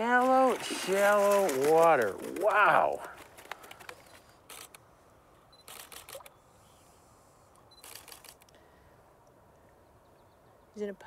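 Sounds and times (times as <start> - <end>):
camera shutter clicking: 5.6 - 6.3, 7.8 - 8.5.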